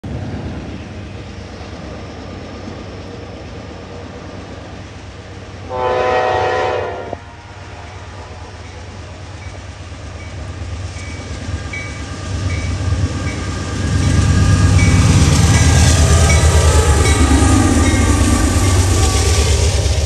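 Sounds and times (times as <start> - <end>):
diesel locomotive rumble: 0.0 - 20.0
locomotive horn blast: 5.7 - 8.6.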